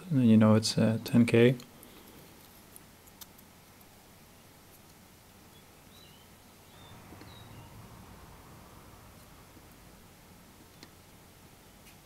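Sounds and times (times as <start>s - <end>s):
small bird chirping: 5.4s - 9.8s.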